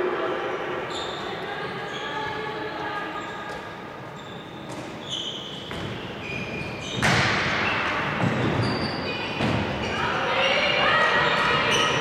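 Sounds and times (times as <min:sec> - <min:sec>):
sports shoes squeaking on floor: 0:00.9 - 0:01.3, 0:03.2 - 0:10.1
ball bouncing: 0:05.7 - 0:06.0.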